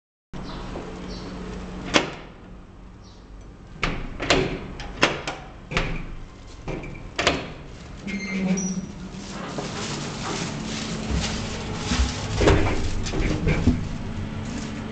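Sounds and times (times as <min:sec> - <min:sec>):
steady hum: 0:07.6 - 0:14.9.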